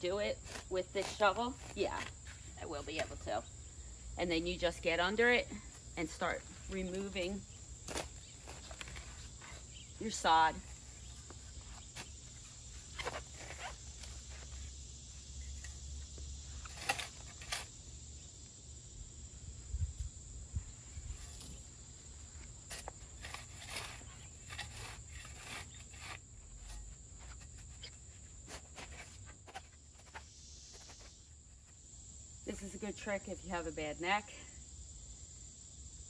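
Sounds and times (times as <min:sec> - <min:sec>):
shovel scraping through soil: 0:00.0 - 0:03.3, 0:06.0 - 0:14.7, 0:16.6 - 0:17.8, 0:22.4 - 0:31.2
high insect drone: 0:00.0 - 0:36.0.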